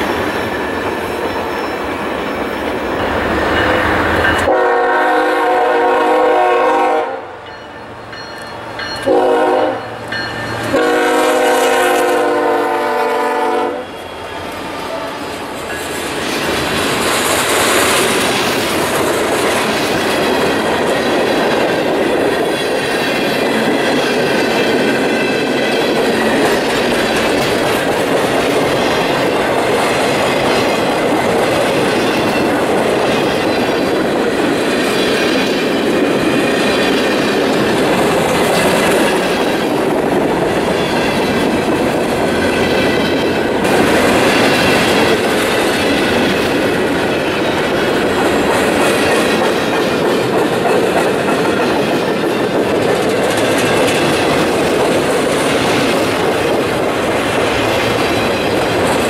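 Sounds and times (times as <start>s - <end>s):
steel wheels rumbling on rails: 0.0s - 59.0s
train horn blasts: 4.4s - 7.4s, 9.0s - 10.0s, 10.7s - 14.1s.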